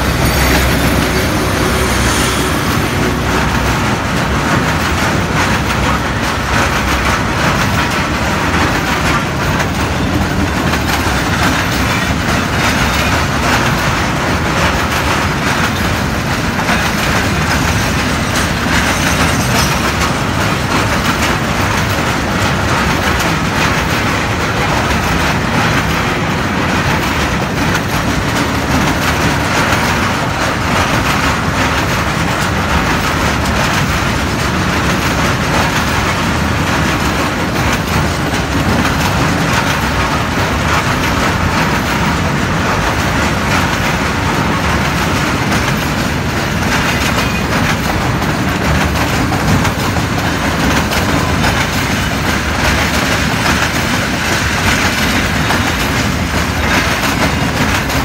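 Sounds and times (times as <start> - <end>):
train wheels clattering on rails: 0.0 - 58.0.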